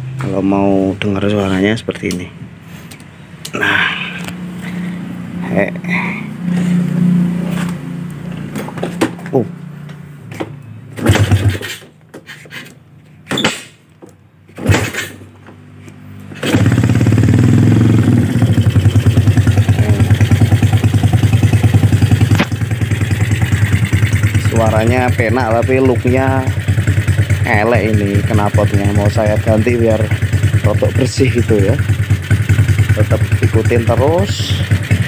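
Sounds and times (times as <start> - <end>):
dirt bike engine idling: 16.4 - 35.0.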